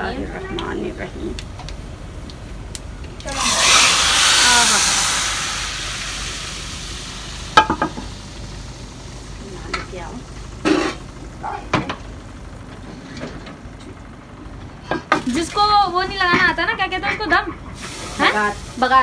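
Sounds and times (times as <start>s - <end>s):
hot oil sizzling loudly: 3.2s - 12.4s, 17.8s - 19.0s.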